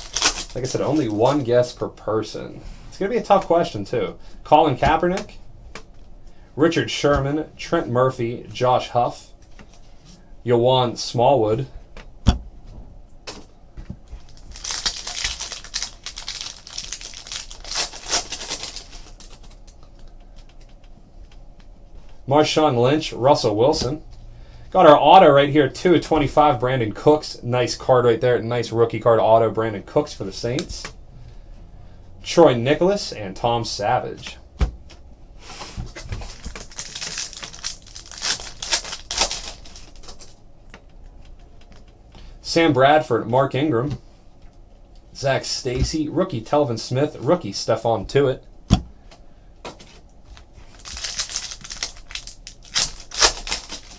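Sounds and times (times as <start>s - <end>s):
card pack wrapper tearing and crinkling: 0.0s - 1.5s, 14.2s - 19.7s, 36.2s - 40.4s, 50.7s - 53.9s.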